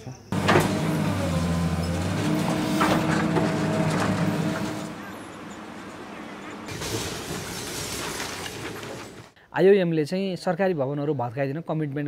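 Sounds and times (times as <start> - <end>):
excavator engine and hydraulics: 0.3 - 9.4.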